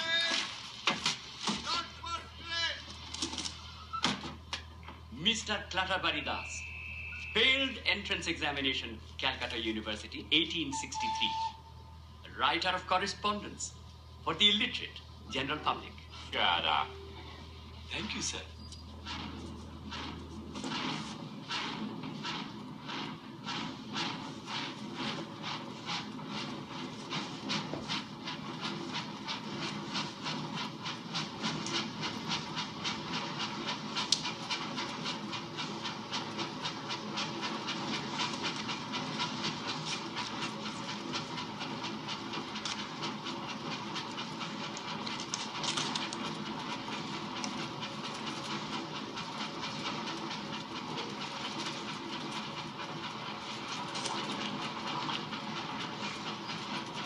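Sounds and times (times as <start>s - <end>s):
steady train rumble: 0.0s - 57.0s
train wheels clicking over rail joints: 18.0s - 57.0s.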